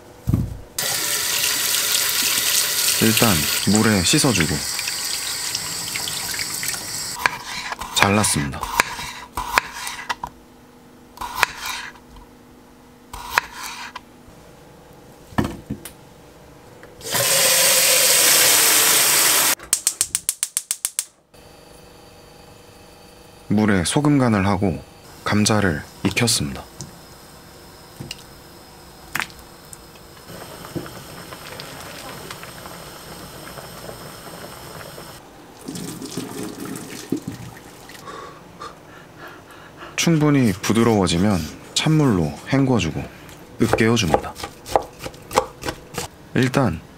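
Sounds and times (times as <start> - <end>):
water poured into a sink: 0.8 - 7.0, 35.6 - 38.0
water boiling in a saucepan: 0.8 - 7.2, 25.7 - 38.0
gas burner humming: 0.8 - 8.1, 17.0 - 20.5, 21.3 - 39.9
knife cutting potato on board: 7.2 - 10.2, 11.2 - 12.0, 13.2 - 14.0, 43.6 - 46.1.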